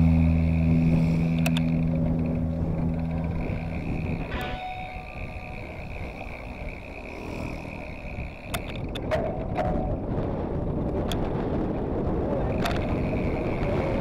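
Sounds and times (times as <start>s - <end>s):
faint high whine: 0.0s - 10.1s, 12.6s - 14.0s
bike tyres rolling on asphalt: 0.0s - 14.0s
wind on microphone: 0.0s - 14.0s
sharp clicks: 1.2s - 6.7s, 7.3s - 9.7s, 12.5s - 13.4s.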